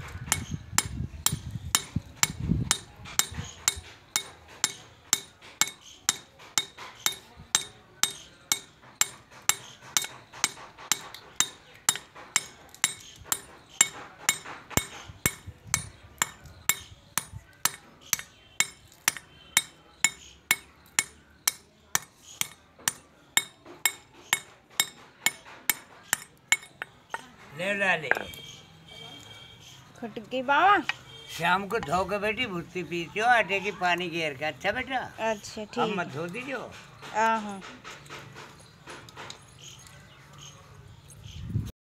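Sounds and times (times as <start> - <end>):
pick-hammer clinking on stone: 0.3 - 27.4, 28.0 - 28.5, 35.8 - 41.3.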